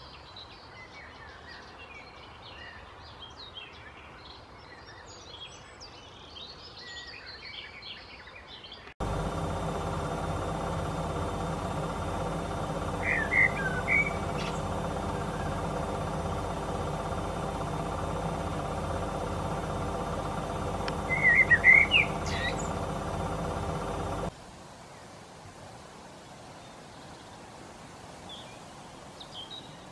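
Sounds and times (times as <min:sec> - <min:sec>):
low hum: 0:09.0 - 0:24.3
blackbird singing: 0:10.3 - 0:24.3.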